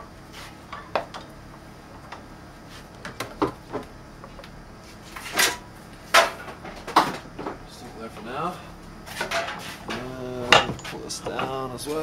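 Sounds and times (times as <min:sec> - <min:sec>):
tools knocking on workbench: 0:09.3 - 0:11.6.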